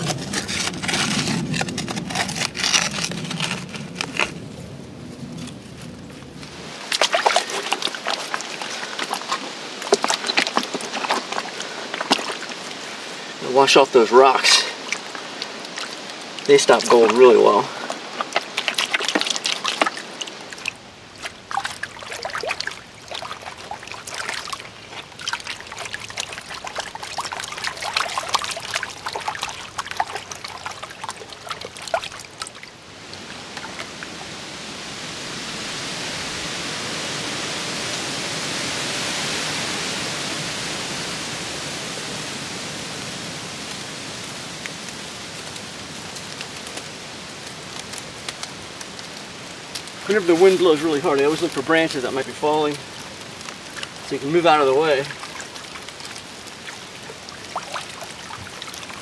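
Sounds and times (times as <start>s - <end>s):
rocks clattering: 0.0s - 4.4s, 6.8s - 12.8s, 13.5s - 32.6s
wind gust through trees: 0.0s - 59.0s
hands splashing in water: 6.8s - 12.9s, 14.3s - 32.7s.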